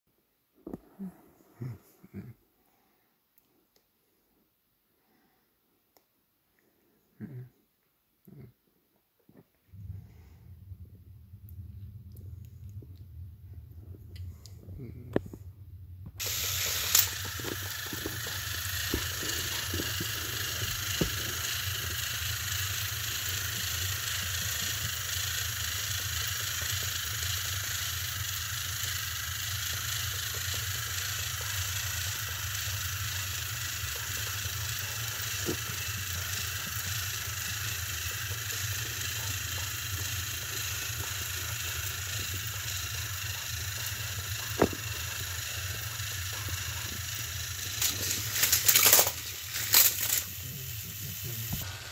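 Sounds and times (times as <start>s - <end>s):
toy train motors whirring: 16.1s - 51.9s.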